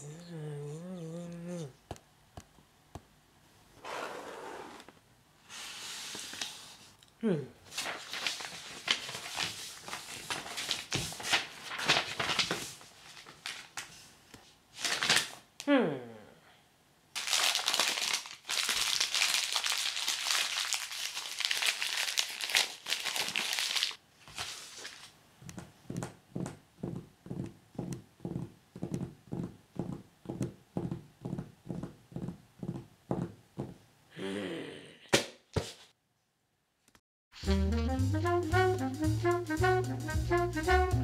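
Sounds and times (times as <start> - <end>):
paper crinkling and rustling: 7.7 - 15.4, 17.2 - 25.2.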